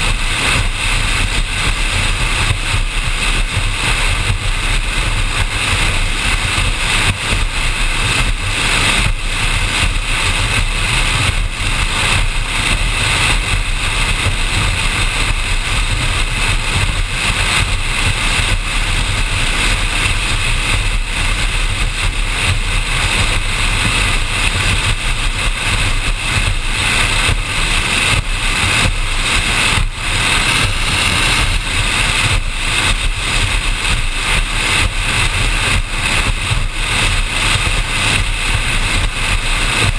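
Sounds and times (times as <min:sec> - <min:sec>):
wind rushing on microphone: 0:00.0 - 0:39.9.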